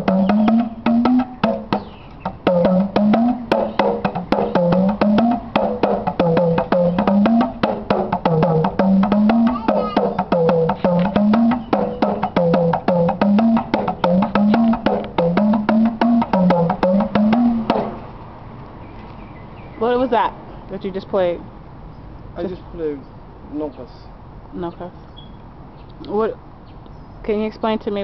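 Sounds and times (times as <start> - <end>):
talking drum strokes: 0.0 - 18.0.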